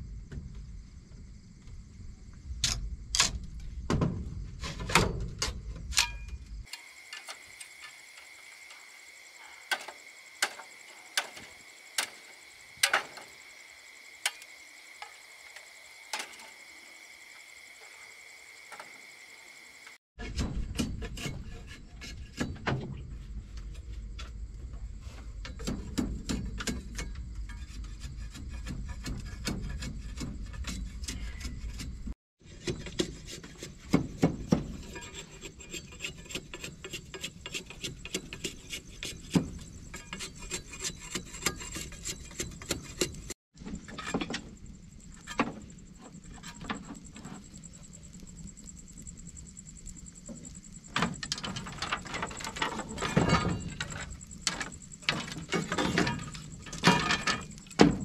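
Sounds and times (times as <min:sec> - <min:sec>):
machete scraping bamboo: 0:20.2 - 0:22.9, 0:26.3 - 0:44.4.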